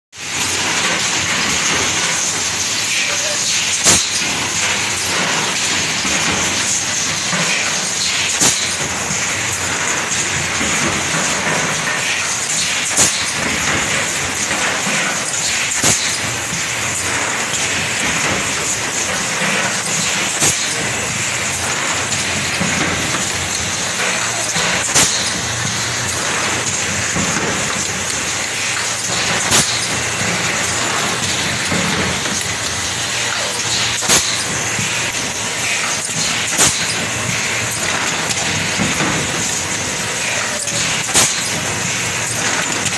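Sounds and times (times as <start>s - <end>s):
blow molding machine hissing: 0.2s - 42.9s
sharp loud air burst: 8.0s - 8.9s, 33.9s - 35.1s, 40.2s - 42.0s.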